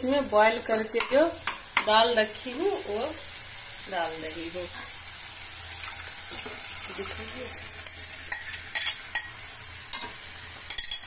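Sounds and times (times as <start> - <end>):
food sizzling in a pan: 0.0 - 11.0
metal spoon scraping a pan: 7.8 - 11.0.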